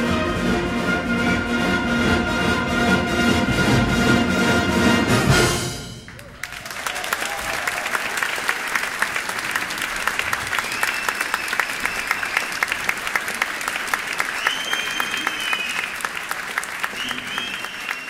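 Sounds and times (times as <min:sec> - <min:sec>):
audience applause: 0:06.1 - 0:18.0.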